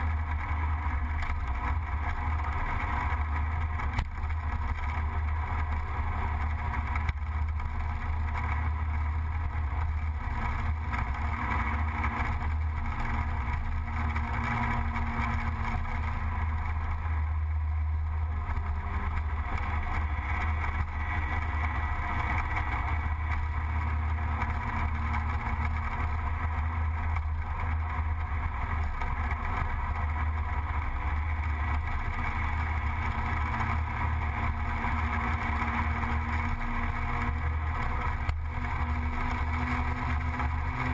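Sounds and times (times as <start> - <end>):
road and wind noise: 0.0 - 40.9
scooter engine running: 0.0 - 40.9.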